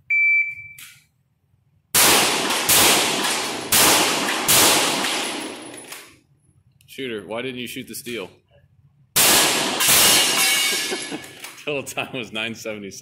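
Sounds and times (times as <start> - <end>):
shot timer beep: 0.1 - 1.0
handgun shots echoing indoors: 1.9 - 6.2, 9.2 - 11.2.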